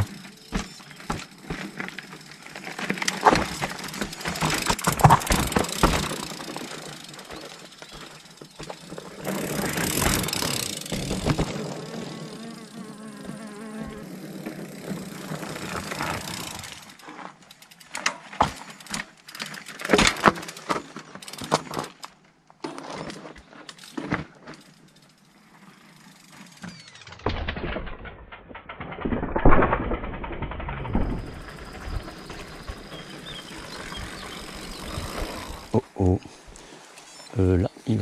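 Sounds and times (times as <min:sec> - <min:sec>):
bike striking rock: 0:00.0 - 0:12.2, 0:26.4 - 0:35.7.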